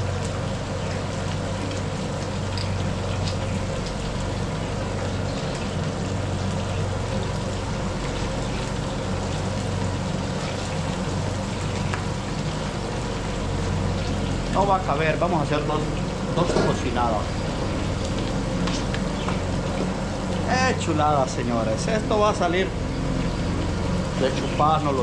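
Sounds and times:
fish frying in hot oil: 0.0 - 25.0
gas burner roaring: 0.0 - 25.0
small crackles and pops: 0.1 - 9.8, 10.4 - 13.1, 17.6 - 20.4.

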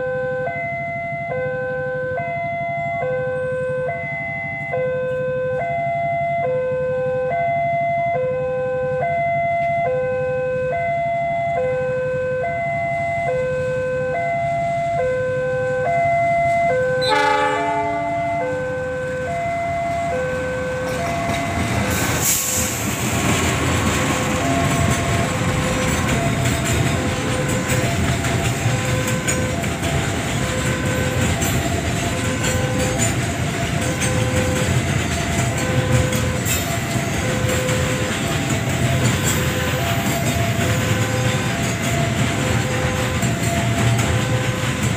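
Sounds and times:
level-crossing alarm chiming: 0.0 - 44.9
train passing: 0.0 - 44.9
train horn blast: 16.8 - 18.7.

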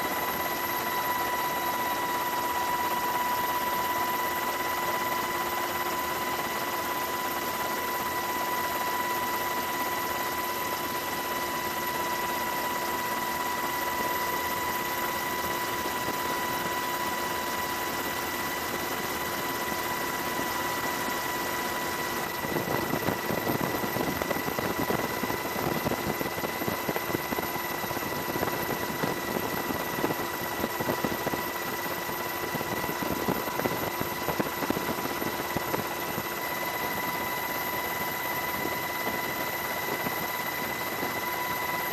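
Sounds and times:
helicopter turbine whine: 0.0 - 41.9.

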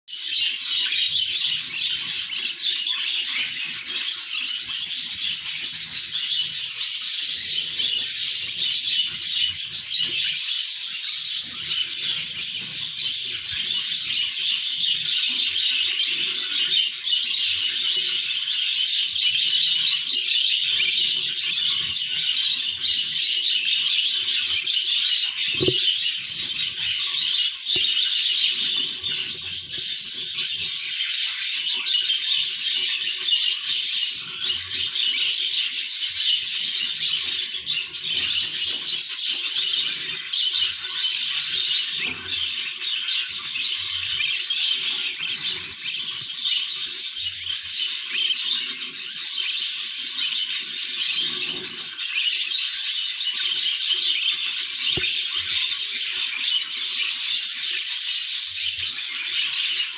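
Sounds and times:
budgerigars chattering: 0.1 - 59.9
soft knock: 25.6 - 25.9.

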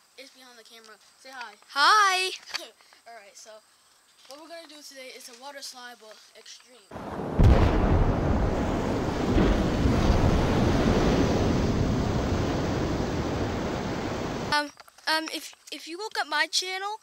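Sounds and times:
explosion rumble: 7.0 - 14.5.

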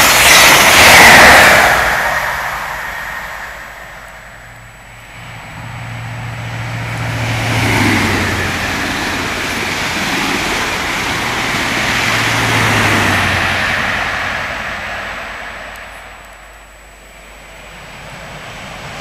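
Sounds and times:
moving train rush: 0.0 - 19.0.

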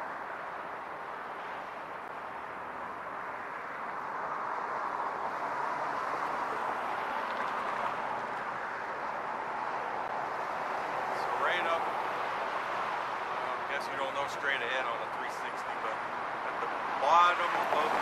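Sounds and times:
road traffic rushing: 0.0 - 18.0.

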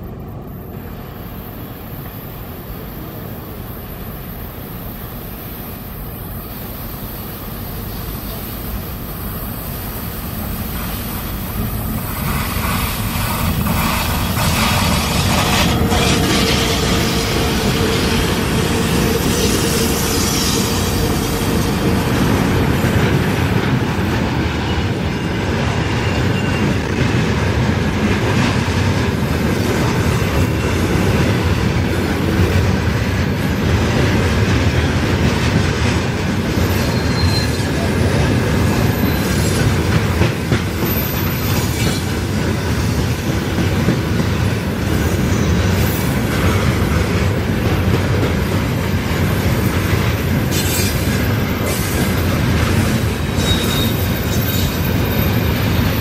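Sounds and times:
train wheels rumbling on rails: 0.0 - 56.0
wheels clacking over rail joints: 10.7 - 56.0
high wheel squeals: 36.5 - 37.9, 38.8 - 39.8, 53.3 - 56.0.

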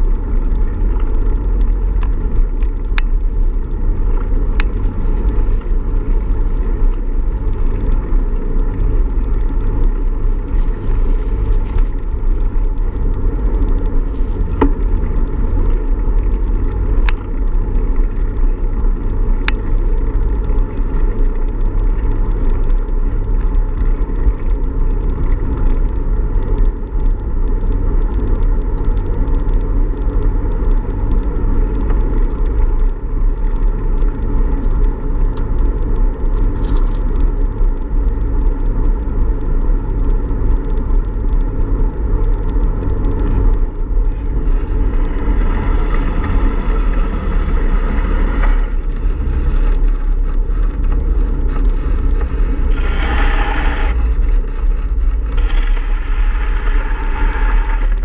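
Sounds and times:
wind and road rumble: 0.0 - 58.0
small clicks: 6.8 - 45.1.

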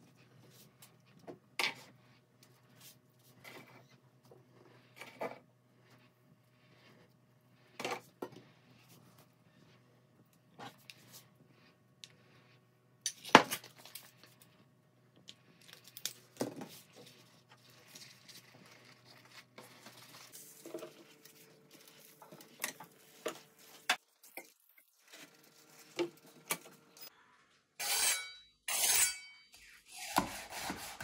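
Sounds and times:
flatbread rustling: 15.4 - 24.0.

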